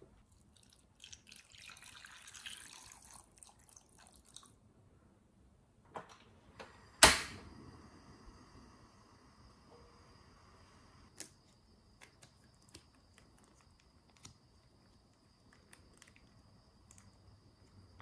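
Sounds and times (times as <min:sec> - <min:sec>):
faint steady hiss: 0:00.0 - 0:18.0
water pouring into saucepan: 0:00.3 - 0:04.6
loud sharp click: 0:07.0 - 0:07.4.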